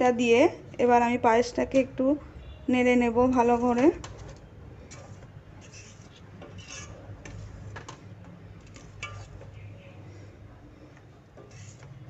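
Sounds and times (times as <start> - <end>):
spoon clicking and scraping a pot: 4.0 - 8.0, 8.6 - 9.6, 11.4 - 11.9.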